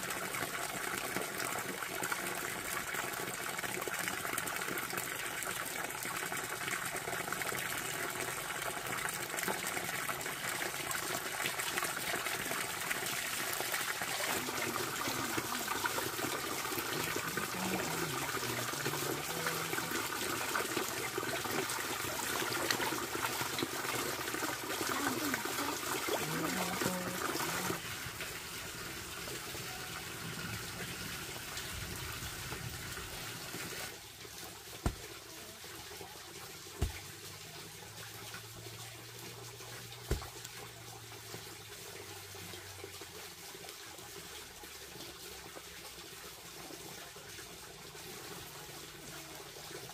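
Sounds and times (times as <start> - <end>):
water running and splashing: 0.0 - 49.9.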